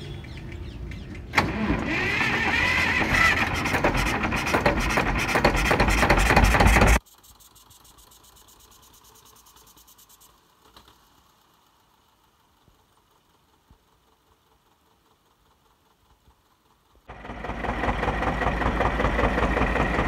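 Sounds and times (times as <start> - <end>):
tractor starting engine running fast: 1.0 - 7.0, 10.4 - 20.0.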